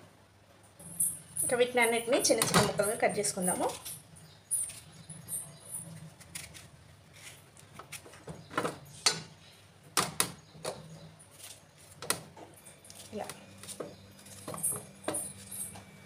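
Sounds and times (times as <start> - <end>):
knife cutting cucumber: 6.1 - 8.2.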